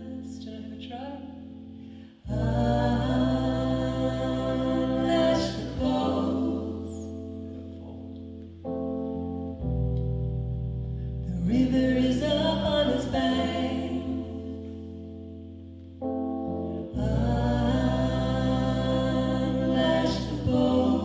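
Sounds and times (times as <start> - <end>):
woman singing with harmony voices: 0.0 - 8.0, 11.2 - 15.4, 16.7 - 21.0
keyboard sustained chords: 0.0 - 21.0.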